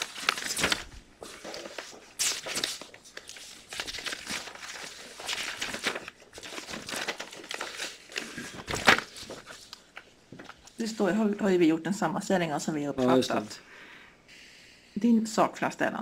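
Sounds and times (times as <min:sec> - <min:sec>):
paper pages rustling: 0:00.0 - 0:10.8.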